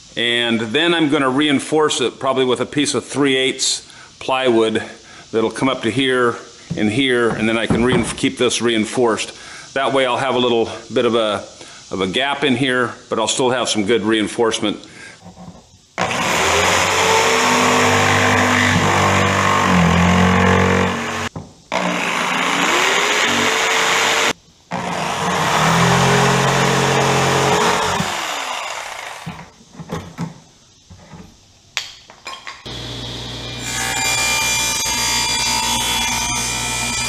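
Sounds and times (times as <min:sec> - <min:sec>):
power tool cutting wood: 0:16.0 - 0:29.5, 0:32.7 - 0:37.0.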